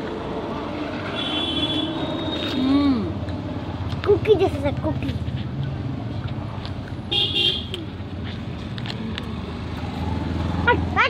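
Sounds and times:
road traffic rumble: 0:00.0 - 0:11.0
vehicle horn toot: 0:01.1 - 0:02.6, 0:07.1 - 0:07.8.

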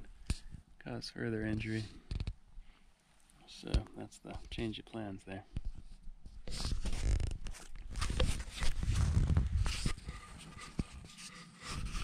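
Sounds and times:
rustling and scuffing: 0:05.6 - 0:12.0.

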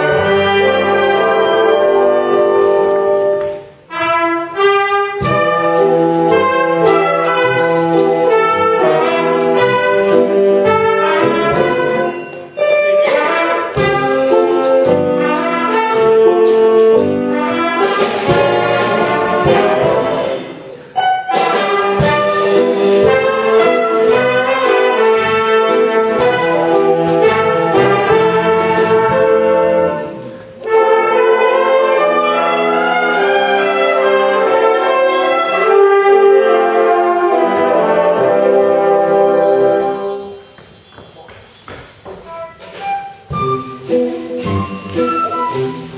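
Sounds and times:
brass band with saxophones playing: 0:00.0 - 0:40.5, 0:42.2 - 0:45.9.

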